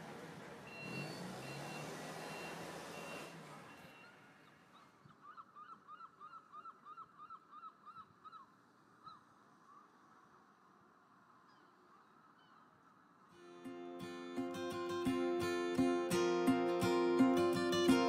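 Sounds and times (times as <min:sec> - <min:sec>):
bird calling: 0:03.8 - 0:09.9, 0:11.5 - 0:12.8.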